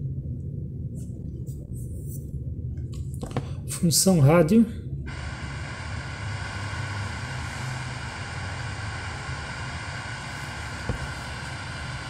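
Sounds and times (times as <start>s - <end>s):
radio static hiss and hum: 5.1s - 12.0s.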